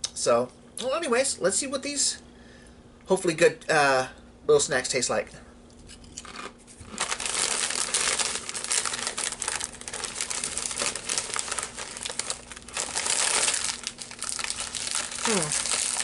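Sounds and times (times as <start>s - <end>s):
crisp packet crinkling: 6.2s - 16.0s.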